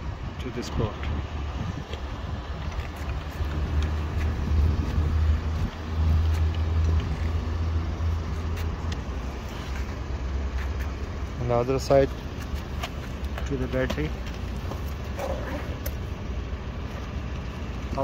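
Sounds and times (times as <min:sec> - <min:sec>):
vehicle engine idling: 0:00.0 - 0:18.0.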